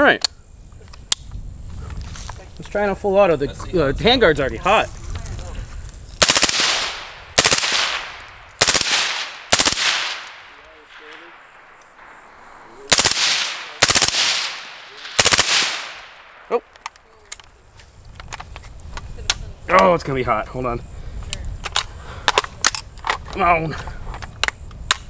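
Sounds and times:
suppressed rifle automatic bursts: 0:06.2 - 0:16.8.

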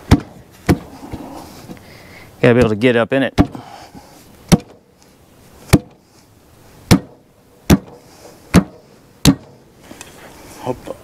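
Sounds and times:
sharp knocks on tyre rim: 0:00.0 - 0:00.8, 0:04.5 - 0:04.8, 0:05.7 - 0:06.0, 0:06.9 - 0:09.6.

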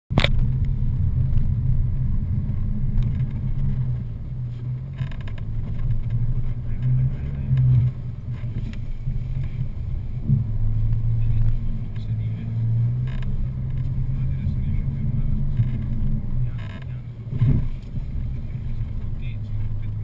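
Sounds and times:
vehicle engine running: 0:00.1 - 0:20.0.

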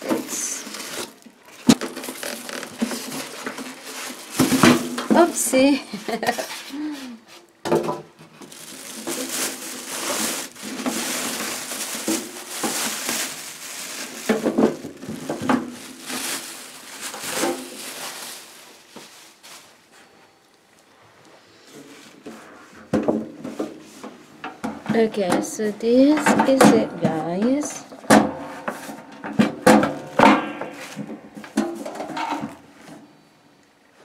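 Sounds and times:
plastic wrapping crinkling: 0:00.0 - 0:20.9.

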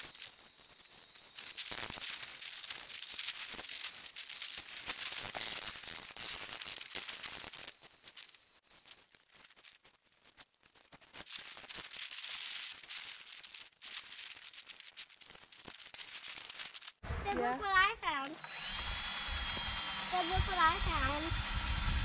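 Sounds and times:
crackling and rustling clicks: 0:00.0 - 0:17.0
light hiss: 0:00.0 - 0:17.0.

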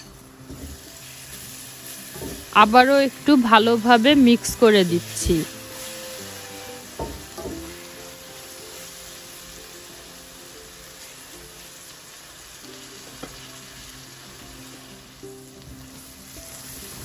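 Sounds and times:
masala sizzling in oil: 0:00.0 - 0:17.0
spatula stirring in pan: 0:05.0 - 0:09.5.

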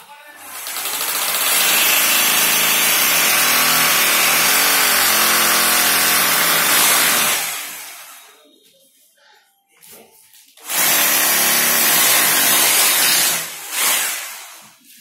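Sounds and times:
hammer drill boring into brick: 0:00.6 - 0:08.2, 0:10.6 - 0:14.7.

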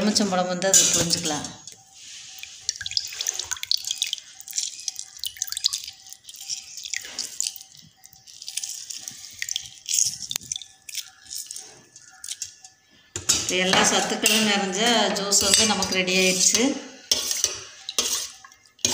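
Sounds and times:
lemon juice dripping into liquid: 0:01.7 - 0:13.1, 0:17.7 - 0:18.9.

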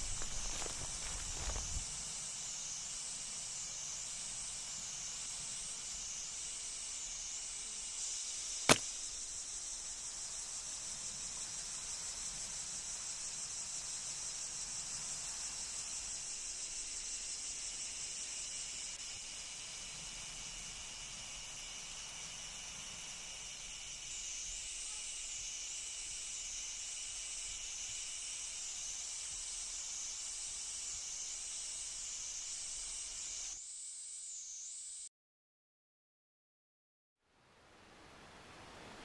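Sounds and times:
insects droning: 0:00.0 - 0:35.1
sharp crack: 0:08.7 - 0:09.2.

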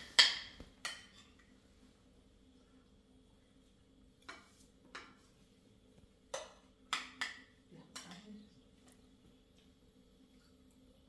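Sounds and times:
spoons clinking on plates: 0:00.0 - 0:01.5, 0:04.2 - 0:05.3, 0:06.3 - 0:08.4.

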